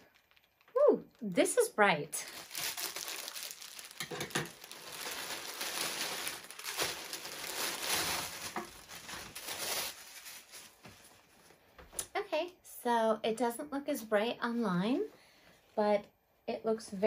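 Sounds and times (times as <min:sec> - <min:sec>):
packaging crinkling: 0:00.0 - 0:01.6, 0:02.2 - 0:11.3
fabric rustling: 0:02.4 - 0:11.6.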